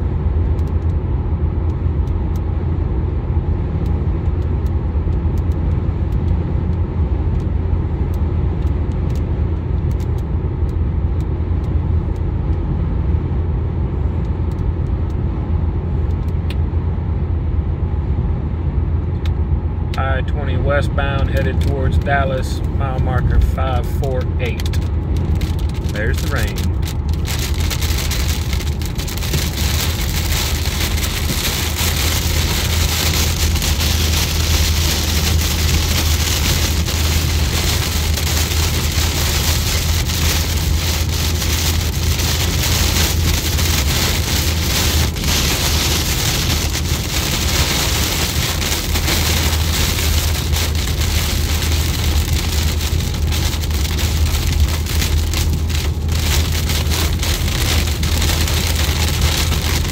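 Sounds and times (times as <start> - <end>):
car driving low drone: 0.0 - 59.9
heavy rain on car windshield: 20.2 - 59.9.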